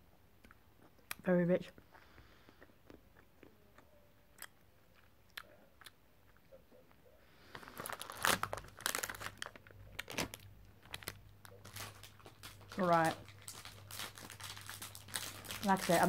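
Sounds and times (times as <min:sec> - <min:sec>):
chewing chocolate: 0:00.4 - 0:07.0
plastic wrapper crinkling: 0:07.4 - 0:16.0.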